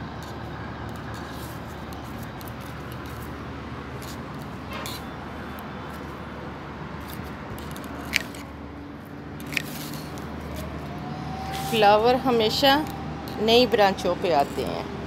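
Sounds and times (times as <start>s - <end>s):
pruning shears snipping stems: 14.2s - 14.8s.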